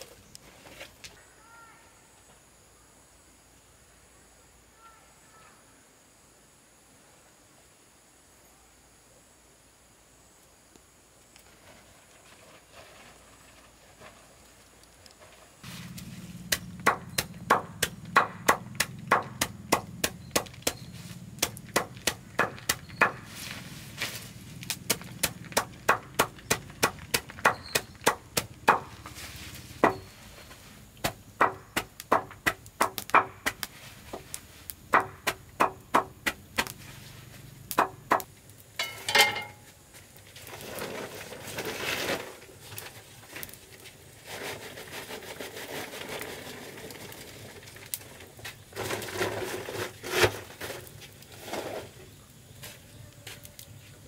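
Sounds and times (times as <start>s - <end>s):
rustling shuffling noise: 0.0s - 1.2s, 11.4s - 16.5s, 23.2s - 24.7s, 28.9s - 31.0s, 33.7s - 34.7s, 39.6s - 54.0s
knife chopping vines: 16.0s - 23.3s, 24.7s - 29.1s, 31.0s - 33.7s, 34.9s - 36.7s.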